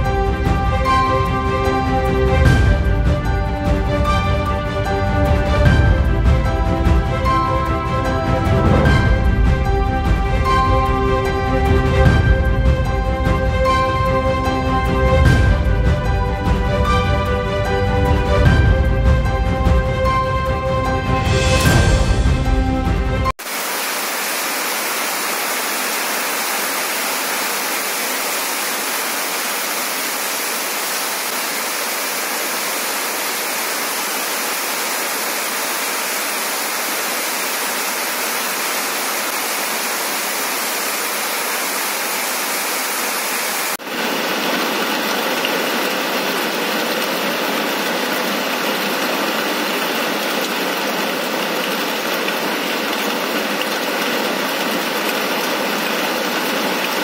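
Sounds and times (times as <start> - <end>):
heavy rain on metal roofs: 0.0 - 57.0
water pouring off roof: 23.2 - 57.0.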